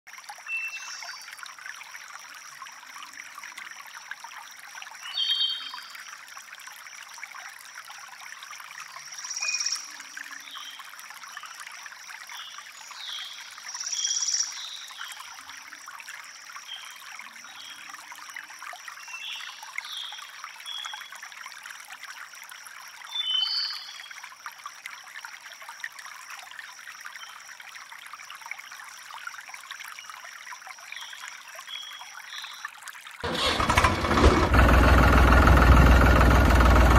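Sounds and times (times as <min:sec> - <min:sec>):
river water flowing and trickling: 0:00.1 - 0:36.9
bird chirps: 0:05.1 - 0:05.8.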